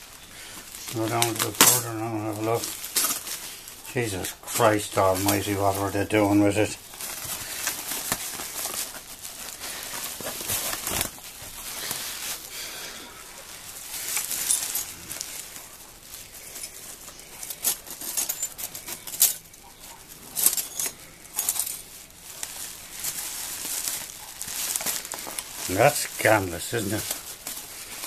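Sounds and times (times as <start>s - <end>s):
plastic packing rustling: 0.0s - 28.0s
broken glass shards clinking: 14.1s - 15.1s, 16.6s - 19.6s, 20.3s - 21.9s.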